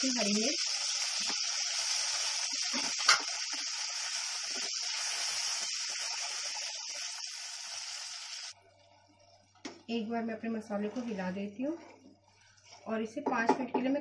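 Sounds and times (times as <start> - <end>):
spices sizzling in hot oil: 0.0 - 10.6
wooden spatula stirring: 10.5 - 13.5.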